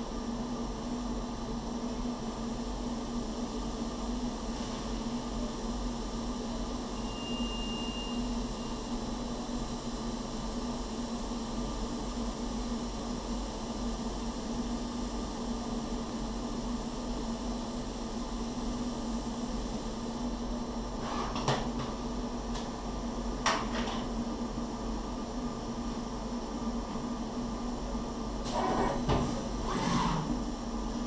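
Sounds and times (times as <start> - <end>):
machine hum with constant tone: 0.0 - 31.0
machine hiss: 2.2 - 20.4, 28.3 - 30.8.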